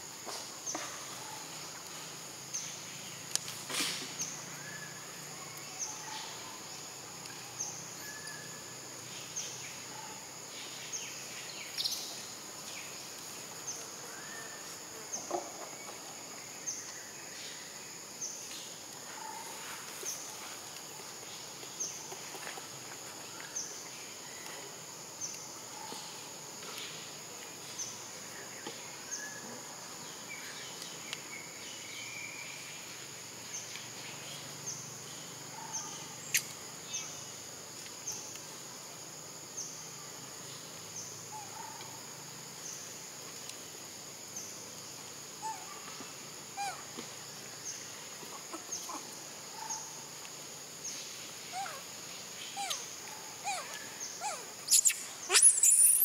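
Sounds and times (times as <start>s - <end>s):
short chirps: 54.7s - 56.0s.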